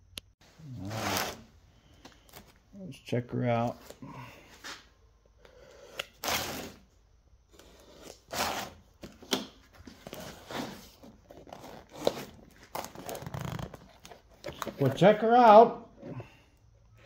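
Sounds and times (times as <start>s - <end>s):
cardboard tearing and scraping: 0.6s - 1.5s, 6.2s - 6.8s, 7.6s - 9.2s, 9.8s - 14.8s.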